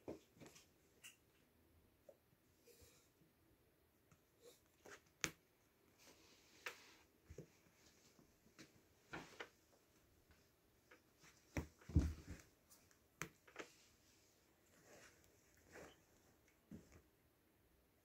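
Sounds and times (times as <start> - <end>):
cats moving in cat bed: 10.9 - 17.0.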